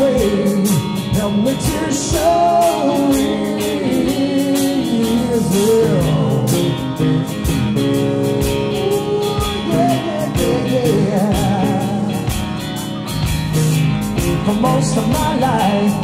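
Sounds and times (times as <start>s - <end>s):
bass guitar: 0.0s - 16.0s
electric guitar: 0.0s - 16.0s.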